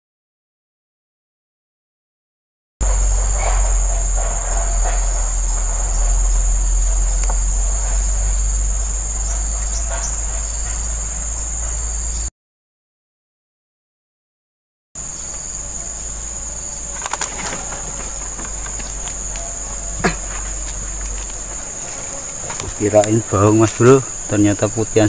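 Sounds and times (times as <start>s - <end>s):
high-pitched insect drone: 2.8s - 12.3s, 15.0s - 25.0s
loud low rumble: 2.8s - 12.3s, 15.2s - 21.9s.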